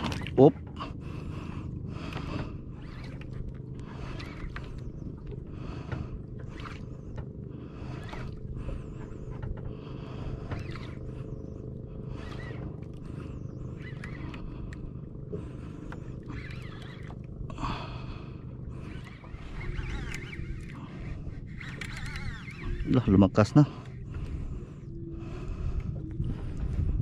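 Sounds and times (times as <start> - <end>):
low steady hum: 0.0 - 27.0
fishing reel rasping: 2.1 - 4.9, 10.2 - 11.4, 12.0 - 14.9, 15.6 - 18.1, 18.7 - 24.9.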